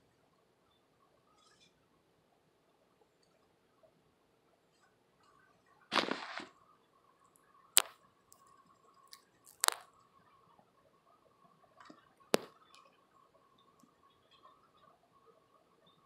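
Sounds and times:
dry food rustling: 5.9 - 6.5, 9.1 - 9.9
guinea pig crunching food: 7.3 - 10.1.

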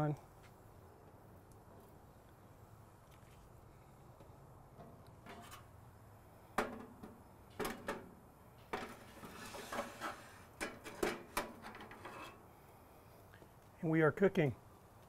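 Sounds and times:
metal grate clanking: 8.7 - 12.4.

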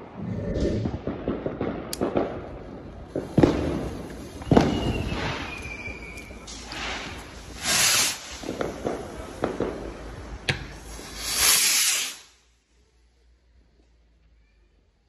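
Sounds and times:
fireworks crackling: 0.0 - 12.7
fireworks hissing bursts: 0.7 - 12.5
fireworks sharp cracks: 0.8 - 12.4.

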